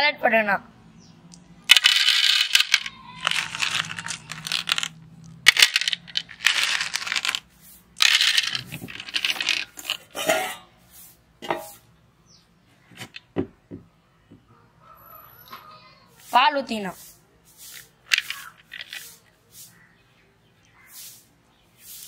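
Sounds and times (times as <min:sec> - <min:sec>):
balls clattering in plastic jar: 0:01.6 - 0:10.4, 0:17.7 - 0:19.3.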